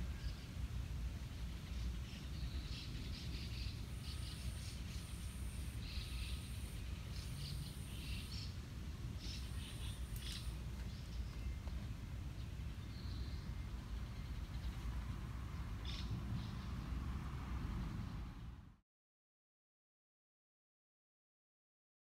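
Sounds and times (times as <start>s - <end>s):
small birds chirping: 0.0s - 17.0s
low outdoor rumble: 0.0s - 18.8s.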